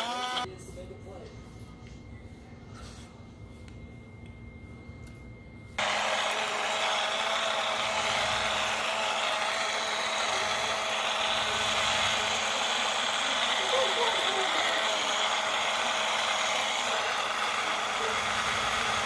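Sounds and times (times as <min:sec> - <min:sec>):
portable blender whirring: 0:00.0 - 0:00.5, 0:05.8 - 0:19.0.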